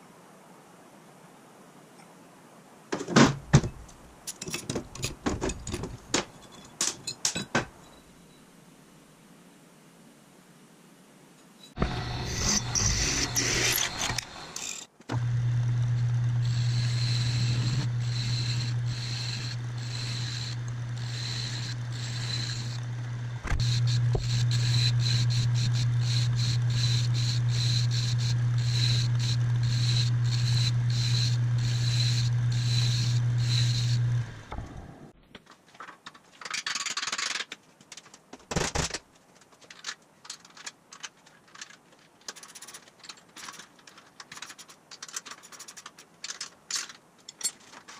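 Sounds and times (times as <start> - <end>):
metallic clicks and knocks: 3.0 - 8.0, 35.3 - 47.9
drill press cutting: 11.8 - 35.0
metal lathe humming: 11.8 - 35.0.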